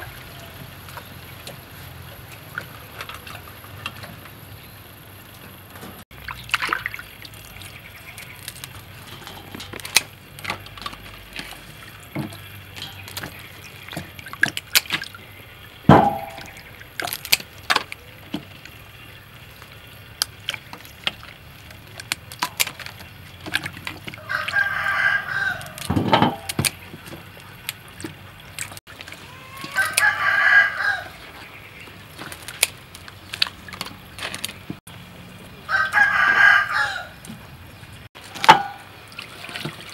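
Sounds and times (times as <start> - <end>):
hands splashing water in basin: 6.1 - 15.2, 38.2 - 39.9
rooster crowing: 24.2 - 25.9, 29.3 - 31.2, 35.6 - 37.2.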